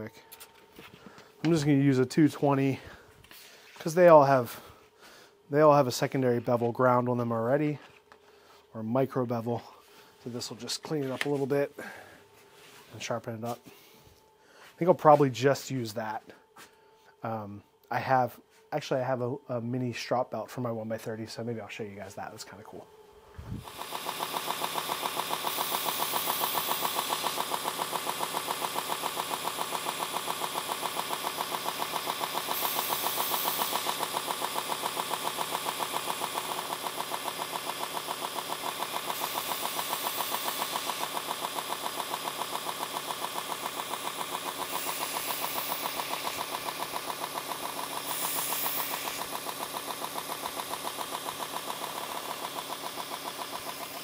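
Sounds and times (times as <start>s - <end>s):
belt grinder motor hum: 23.2s - 54.0s
blade hissing on grinder belt: 23.6s - 54.0s.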